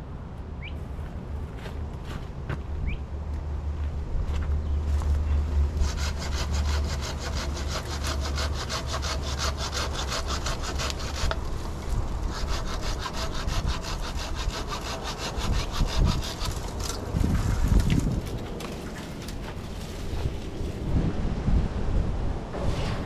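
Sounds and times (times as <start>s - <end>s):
steady low hum: 0.0s - 23.0s
hand saw rasping through wood: 5.7s - 11.6s, 12.2s - 17.0s.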